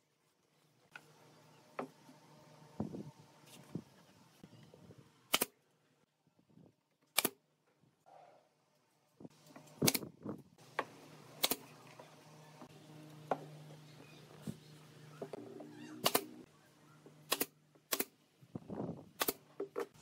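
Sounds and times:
nail gun firing: 0:05.3 - 0:05.5, 0:09.8 - 0:10.1, 0:11.4 - 0:11.6, 0:16.0 - 0:16.3, 0:17.3 - 0:18.2, 0:19.2 - 0:19.4.

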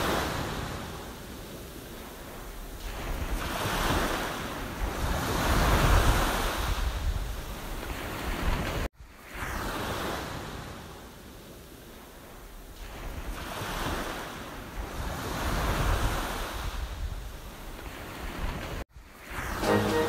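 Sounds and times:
small waves washing on sand: 0:00.0 - 0:20.0
wind rumbling on microphone: 0:00.1 - 0:08.9, 0:14.7 - 0:18.8.

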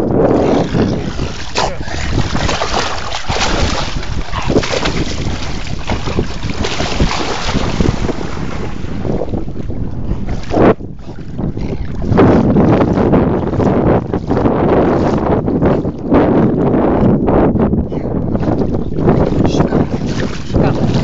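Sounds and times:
wind buffeting microphone: 0:00.0 - 0:21.0
river water splashing: 0:00.4 - 0:09.3.

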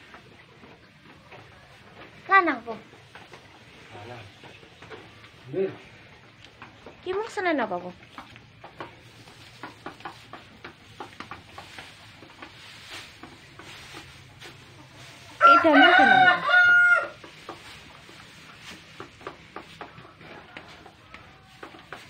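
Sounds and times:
rustling in straw: 0:08.9 - 0:22.0
rooster crowing: 0:15.4 - 0:17.2.

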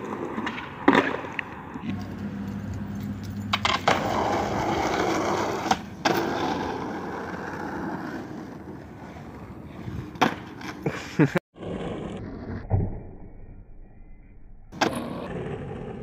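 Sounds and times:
skateboard clacks: 0:00.0 - 0:02.0
skateboard wheels rolling on asphalt: 0:00.0 - 0:12.6, 0:14.8 - 0:16.0.

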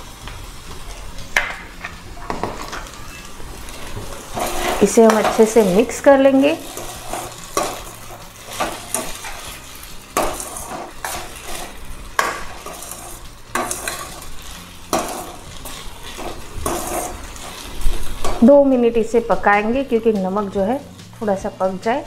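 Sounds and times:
okra sizzling: 0:00.0 - 0:22.0
metal spatula scraping a pot: 0:03.8 - 0:18.4.

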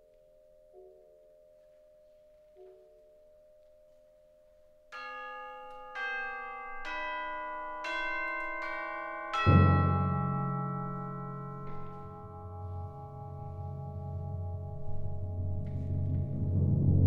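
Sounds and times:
soft mallet percussion notes: 0:00.1 - 0:16.7
tubular bells ringing: 0:04.9 - 0:17.0
deep timpani stroke: 0:09.4 - 0:17.0.

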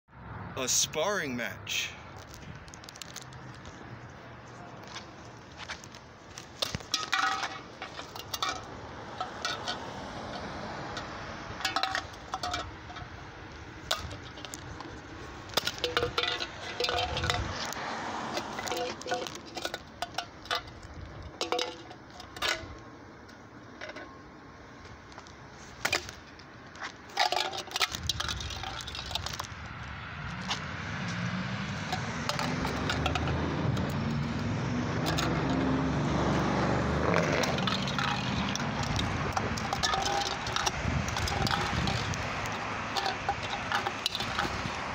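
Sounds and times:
car engine approaching: 0:01.4 - 0:24.6, 0:27.3 - 0:44.9
can clattering on concrete: 0:06.4 - 0:13.2, 0:13.8 - 0:14.9, 0:15.5 - 0:22.8, 0:27.1 - 0:29.5, 0:31.9 - 0:34.0, 0:35.0 - 0:36.3, 0:36.9 - 0:44.9.

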